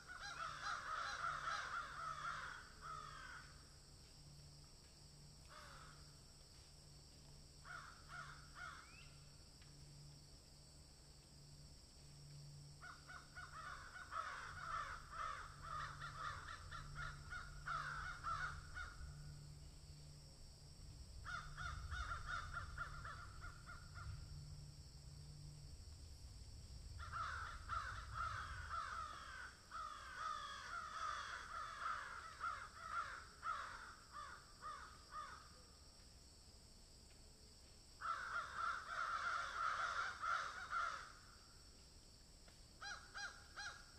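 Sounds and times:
harsh crow-like calls: 0.0 - 3.7, 5.4 - 6.2, 7.6 - 9.0, 12.8 - 19.7, 21.2 - 24.7, 27.0 - 35.7, 38.0 - 41.4, 42.8 - 43.9
low steady hum: 3.5 - 30.4.

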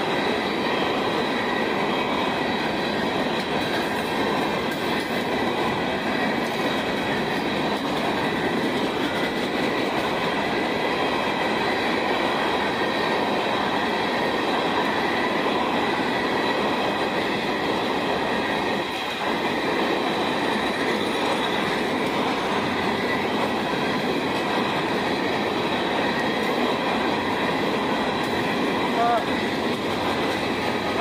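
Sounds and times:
freight train wheels rumbling on rails: 0.0 - 31.0.

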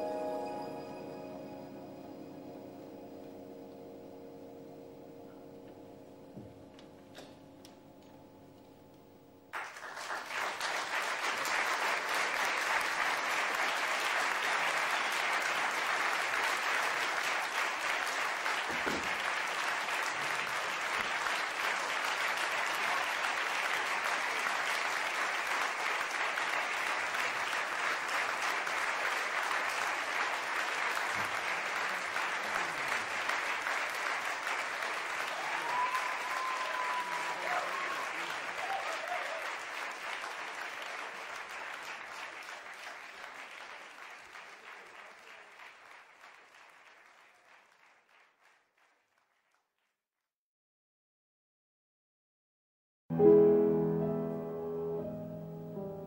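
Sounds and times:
audience applauding: 9.5 - 49.6.

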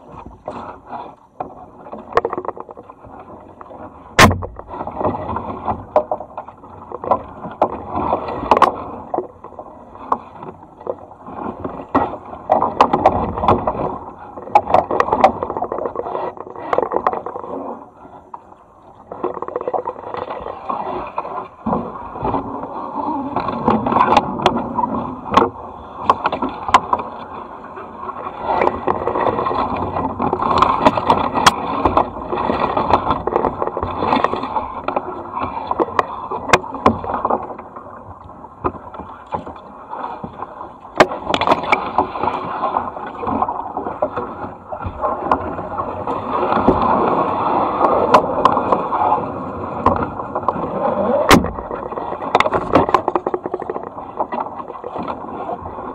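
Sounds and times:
paddle strokes splashing water: 0.0 - 55.9
sharp clicks and knocks: 51.3 - 55.2.

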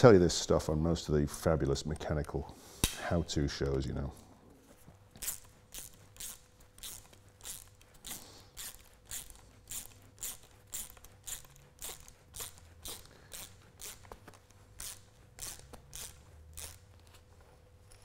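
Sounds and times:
ratchet spanner clicking: 5.2 - 7.8, 8.6 - 14.0.

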